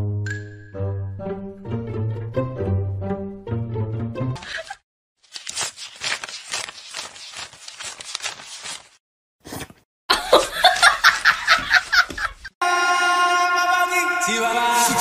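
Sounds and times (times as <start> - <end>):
burst of laughter: 4.4 - 4.8, 10.1 - 12.5.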